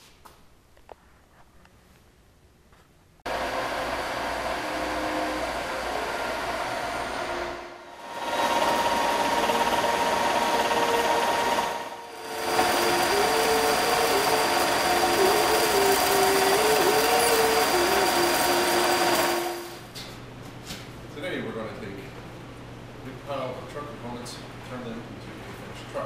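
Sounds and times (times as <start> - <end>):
metal lathe running: 3.3 - 19.9.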